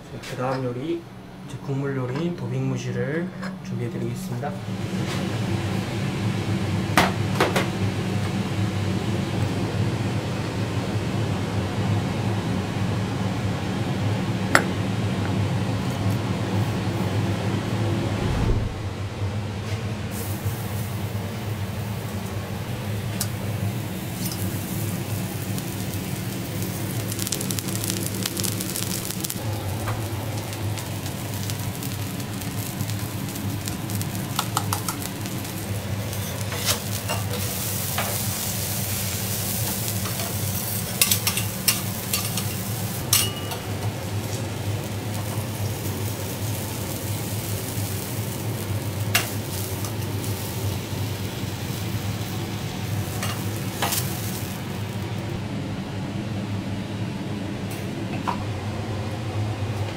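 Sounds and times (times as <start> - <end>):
low hum: 17.3 - 20.0
scallop sizzling on a griddle: 20.1 - 55.1.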